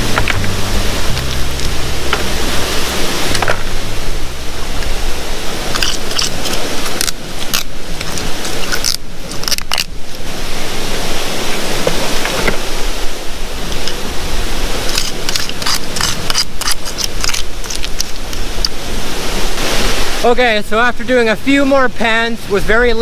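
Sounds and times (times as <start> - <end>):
waterfall rushing: 0.0 - 23.0
metal tool scraping on rock: 14.9 - 18.1.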